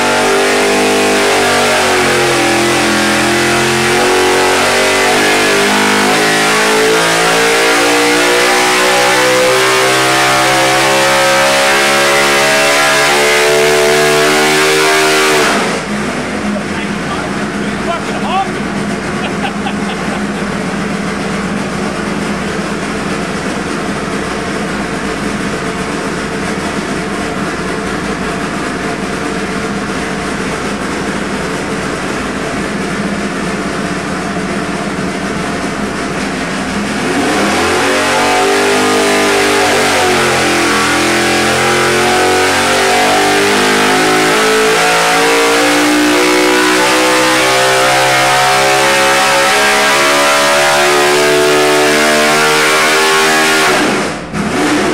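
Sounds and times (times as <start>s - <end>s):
race engine on dyno: 0.0s - 54.9s.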